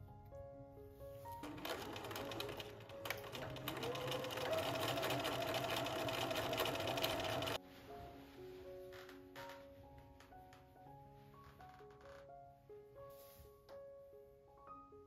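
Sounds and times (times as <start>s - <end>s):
sewing machine motor whining: 1.5s - 7.6s.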